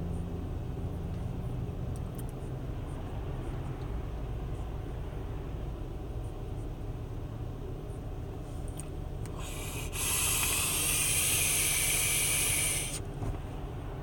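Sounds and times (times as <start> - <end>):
car cabin road noise: 0.0 - 14.0
vape coil crackling hiss: 9.4 - 13.0.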